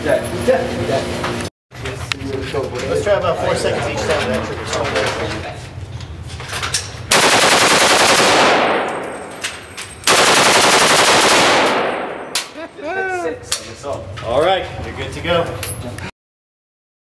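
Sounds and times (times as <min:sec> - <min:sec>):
machine gun automatic bursts: 0:07.1 - 0:09.4, 0:10.1 - 0:12.3.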